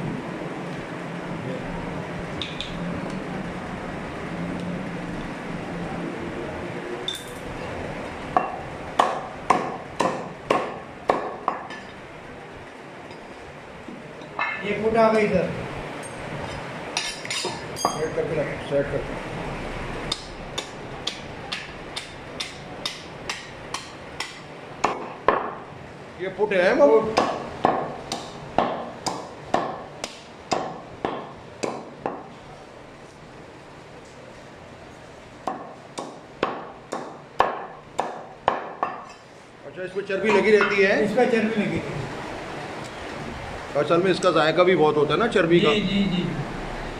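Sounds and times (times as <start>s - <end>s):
cleaver chopping ribs on wood: 9.0s - 11.6s, 27.2s - 32.3s, 35.5s - 39.0s.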